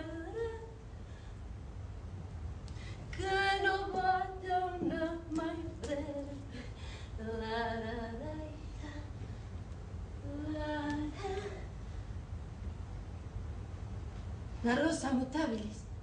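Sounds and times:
woman singing unaccompanied: 0.0s - 0.8s, 3.1s - 9.2s, 10.2s - 11.7s.

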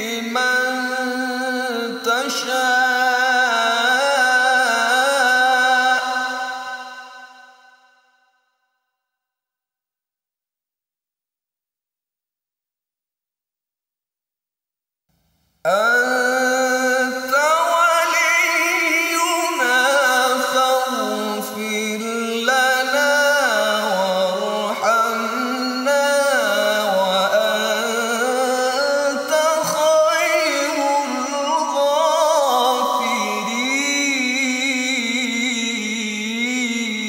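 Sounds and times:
man reciting melodically: 0.0s - 7.3s, 15.7s - 37.0s.

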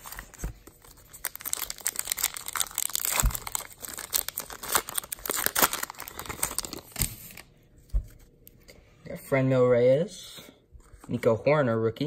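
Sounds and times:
card pack wrapper crinkling and tearing: 0.0s - 7.5s.

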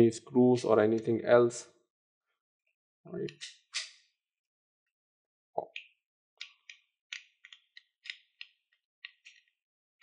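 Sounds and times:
plastic parts clicking and tapping: 5.7s - 9.6s.

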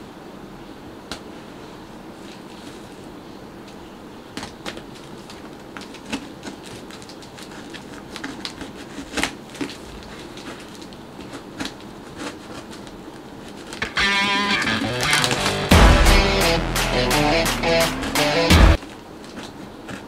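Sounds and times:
tape and cardboard scraping: 5.8s - 15.7s.

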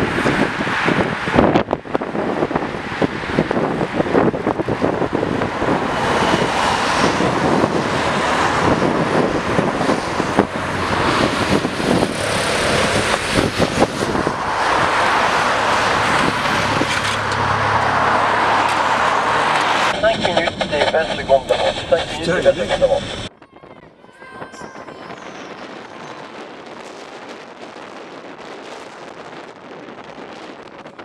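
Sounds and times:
low engine hum: 2.0s - 23.3s
cars and motorcycle driving past: 3.6s - 20.0s.

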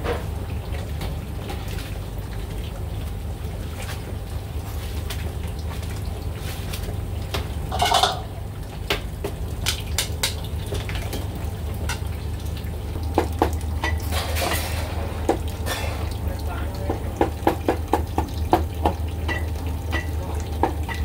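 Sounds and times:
metal kitchenware clattering: 7.7s - 8.4s, 13.8s - 15.0s, 15.6s - 16.2s.

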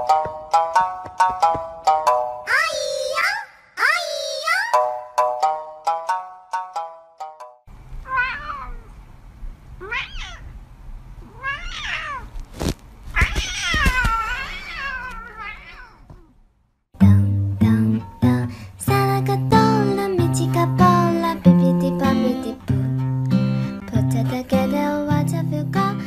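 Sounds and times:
plucked-string music: 0.0s - 2.4s, 17.0s - 26.0s
cat meowing: 8.0s - 9.0s, 9.8s - 10.6s, 11.2s - 12.4s, 13.1s - 16.4s.

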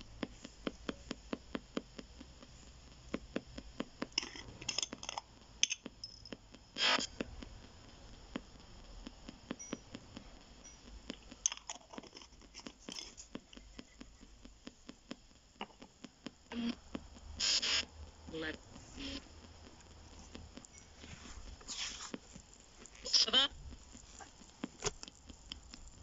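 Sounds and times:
faint radio static: 6.5s - 26.0s
hiss bursts: 6.8s - 9.6s, 17.3s - 19.9s.

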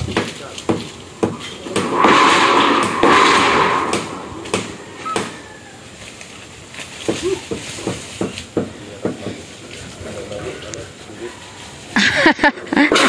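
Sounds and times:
sharp knocks: 0.1s - 5.4s
rough scraping: 0.4s - 8.5s.

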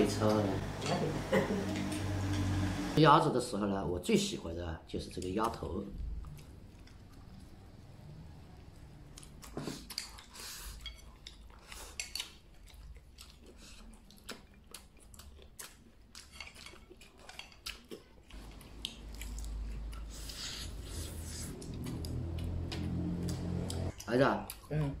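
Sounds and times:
person chewing: 5.4s - 7.6s, 8.8s - 25.0s.

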